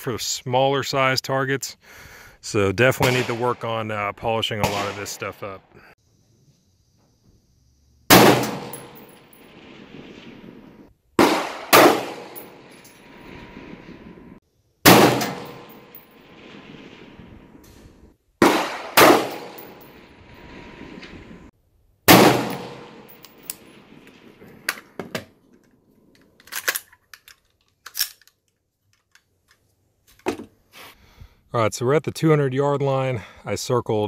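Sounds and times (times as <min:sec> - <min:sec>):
rifle shots echoing: 0:03.0 - 0:03.8, 0:04.6 - 0:05.3, 0:08.1 - 0:14.0, 0:14.8 - 0:17.3, 0:18.4 - 0:20.1, 0:22.1 - 0:25.0
gun handling clicks and knocks: 0:23.1 - 0:30.6.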